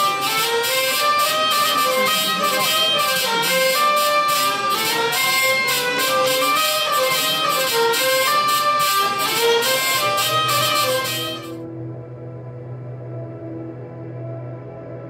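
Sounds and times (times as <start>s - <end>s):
violin melody: 0.0s - 11.6s
hurdy-gurdy drone: 0.0s - 15.0s.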